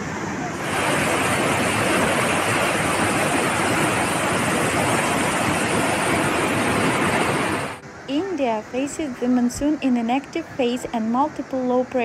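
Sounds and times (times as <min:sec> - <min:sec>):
torrent of water rushing: 0:00.0 - 0:08.6.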